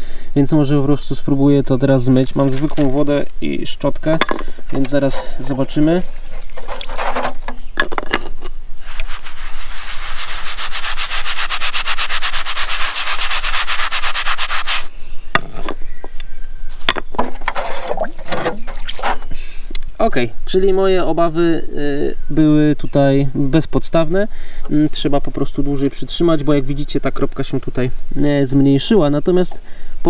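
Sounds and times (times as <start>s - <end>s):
brush scrubbing wet concrete: 8.8s - 14.9s.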